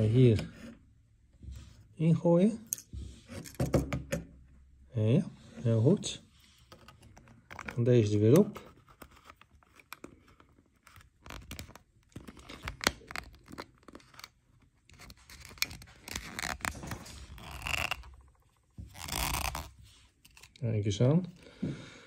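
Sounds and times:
cap twisting with clicks and scrapes: 0:06.5 - 0:20.6.

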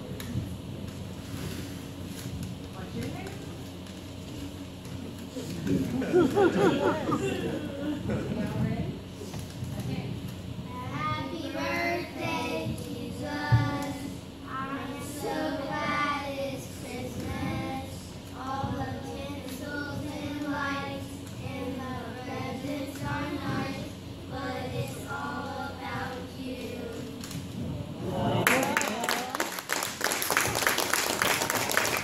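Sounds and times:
young children singing: 0:10.8 - 0:27.4.

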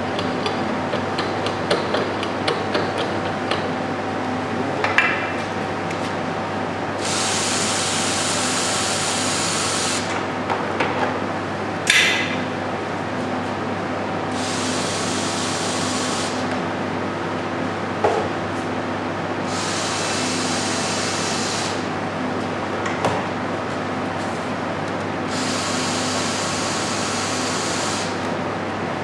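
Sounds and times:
steady low hum: 0:00.0 - 0:25.2.

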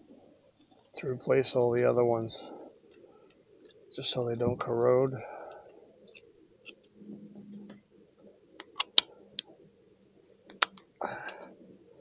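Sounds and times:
sharp clicks: 0:10.5 - 0:11.5.

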